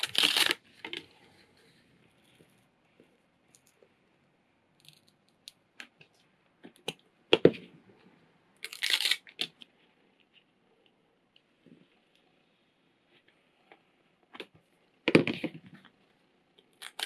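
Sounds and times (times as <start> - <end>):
paper crinkling: 0.0 - 1.0.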